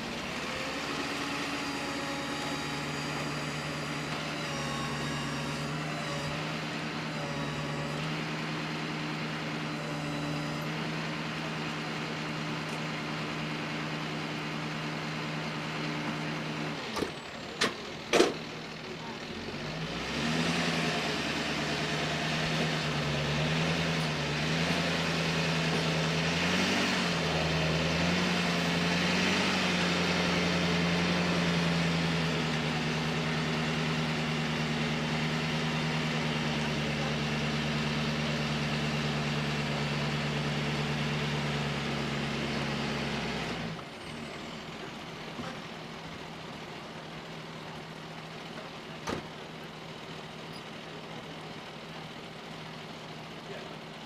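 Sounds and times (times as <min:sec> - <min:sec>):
tow truck engine and hydraulics: 0:00.0 - 0:54.0.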